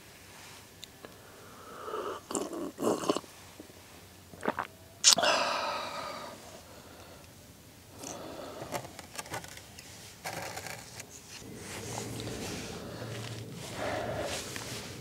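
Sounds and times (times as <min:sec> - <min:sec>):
loud breathy ahh: 0:01.2 - 0:02.3, 0:05.1 - 0:08.9, 0:11.4 - 0:15.0
person slurping hot tea: 0:01.8 - 0:03.3.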